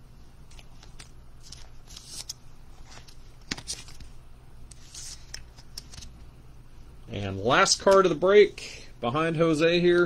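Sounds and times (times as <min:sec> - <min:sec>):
card sliding into plastic sleeve: 0:00.5 - 0:04.1, 0:04.7 - 0:06.1.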